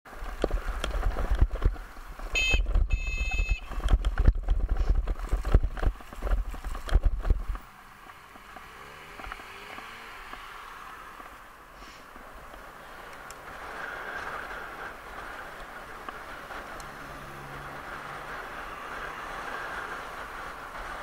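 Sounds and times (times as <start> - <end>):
bicycle rattling over cobblestones: 0.1 - 8.2
tyres hissing on asphalt: 7.6 - 21.0.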